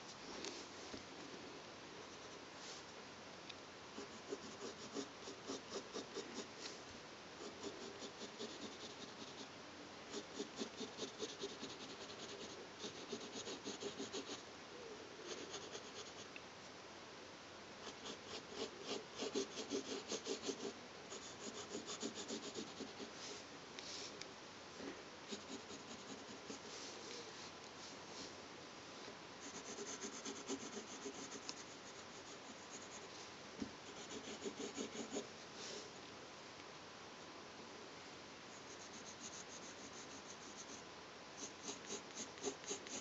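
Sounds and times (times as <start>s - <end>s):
pencil scratching on paper: 4.0s - 6.7s, 7.4s - 9.5s, 10.1s - 14.4s, 15.2s - 16.3s, 17.8s - 23.2s, 25.3s - 26.8s, 29.4s - 33.1s, 33.8s - 35.3s, 38.6s - 40.8s, 41.4s - 43.0s.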